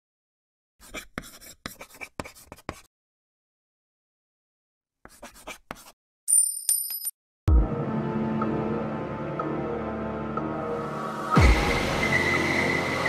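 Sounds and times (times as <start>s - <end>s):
marker scribbling on board: 0.8s - 2.9s, 5.0s - 6.0s.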